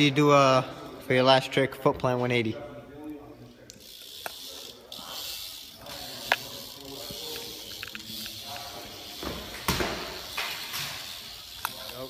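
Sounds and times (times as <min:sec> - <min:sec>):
bike landing knock: 0:09.2 - 0:11.0.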